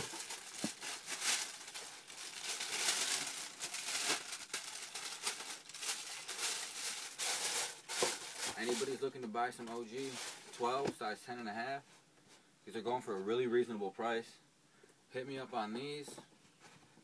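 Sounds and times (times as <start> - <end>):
wrapping paper crinkling: 0.0 - 10.6.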